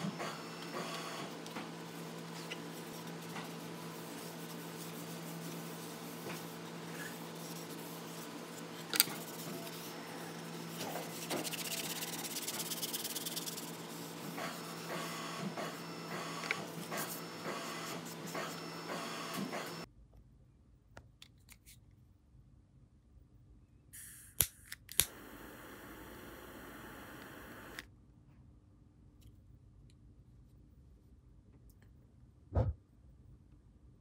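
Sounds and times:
steady hum: 0.0s - 19.9s, 25.0s - 27.8s
foam pad rubbing on wood: 0.2s - 19.8s.

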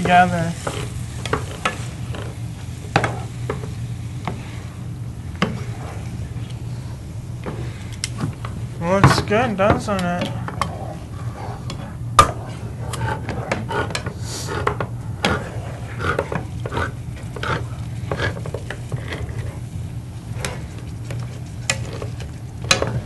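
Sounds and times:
spatula scraping a frying pan: 0.0s - 2.4s, 16.0s - 19.7s
light sizzle: 0.0s - 13.2s, 13.9s - 23.0s
steady low hum: 0.0s - 23.0s.

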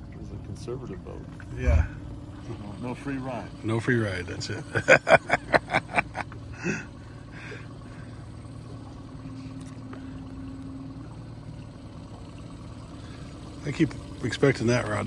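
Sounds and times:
boat motor humming: 0.0s - 15.0s.

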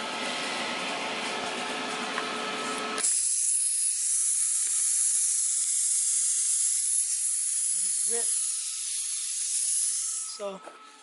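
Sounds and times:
compressed air hissing: 3.0s - 10.4s.

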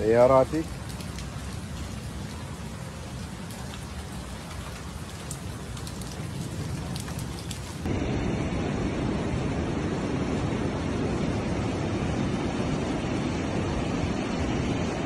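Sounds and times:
floodwater rushing: 0.0s - 8.0s
heavy rain falling: 0.0s - 8.1s.

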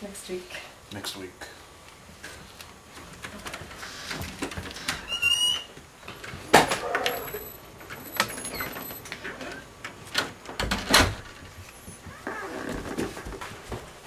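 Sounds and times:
door hinge squeaking: 4.8s - 5.7s, 6.7s - 9.7s, 12.1s - 12.8s.

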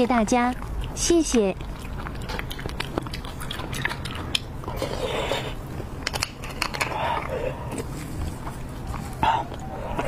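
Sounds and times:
wet clicks and crackles: 6.0s - 7.0s.

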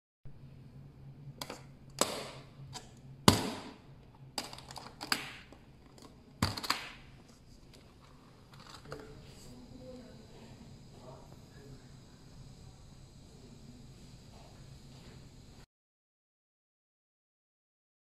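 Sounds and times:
faint handling noise: 5.8s - 9.6s.

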